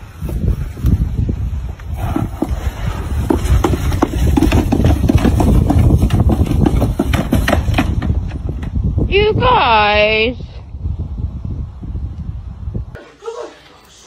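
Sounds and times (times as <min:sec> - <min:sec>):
plastic sled scraping: 0:01.9 - 0:08.4
sled knocking: 0:02.0 - 0:08.8.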